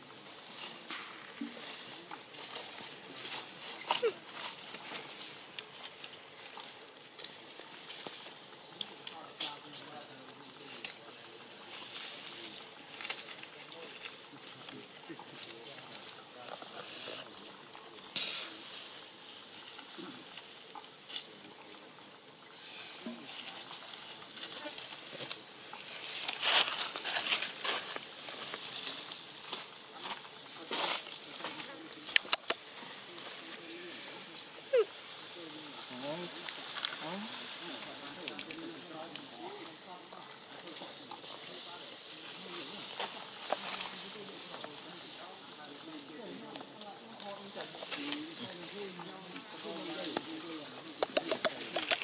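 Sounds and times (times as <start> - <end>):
dry leaves crackling and rustling: 0.0 - 52.0.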